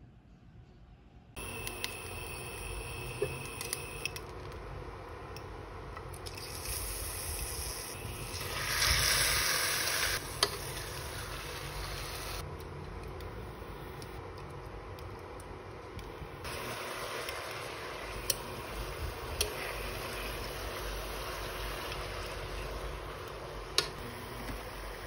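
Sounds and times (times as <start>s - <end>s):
chicken sizzling in hot oil: 6.3s - 12.4s, 16.4s - 23.7s.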